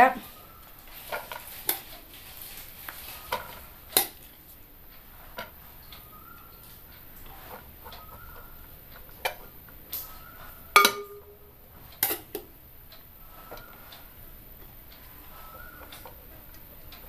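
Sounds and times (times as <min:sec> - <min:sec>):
metal spoon clinking on steel pot: 0:10.7 - 0:11.4.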